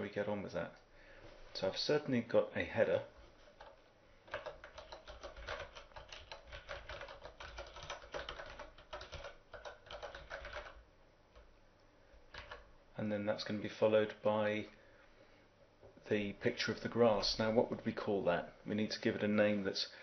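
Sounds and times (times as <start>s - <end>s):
computer keyboard typing: 3.5s - 10.8s, 12.3s - 12.7s.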